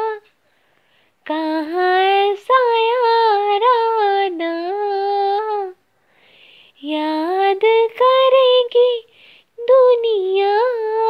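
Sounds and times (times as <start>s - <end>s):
girl singing unaccompanied: 0.0s - 0.4s, 1.2s - 5.9s, 6.6s - 11.0s
short breath: 0.4s - 1.2s, 5.9s - 6.8s, 9.1s - 9.6s.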